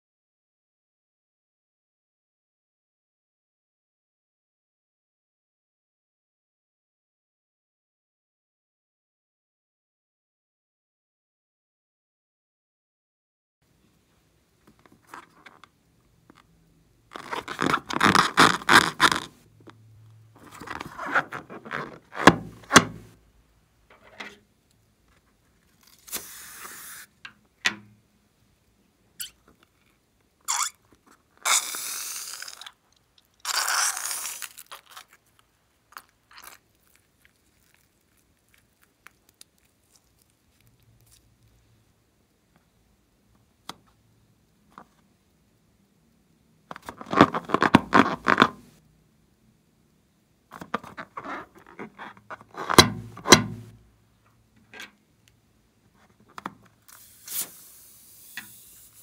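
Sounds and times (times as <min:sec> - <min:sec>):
balloon rubber crackling: 0:17.1 - 0:19.4, 0:20.4 - 0:23.2, 0:46.9 - 0:48.7.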